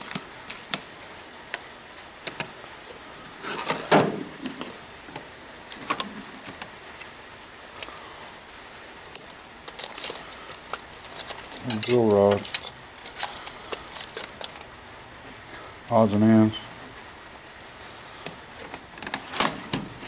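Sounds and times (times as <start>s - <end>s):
tool chest drawers sliding: 3.4s - 4.7s, 19.0s - 20.0s
tools clinking: 9.1s - 14.7s.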